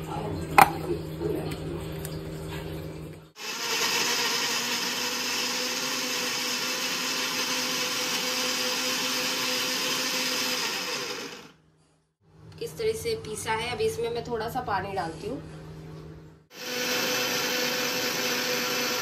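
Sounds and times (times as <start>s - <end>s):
mixer grinder motor droning: 2.4s - 11.6s, 16.5s - 19.0s.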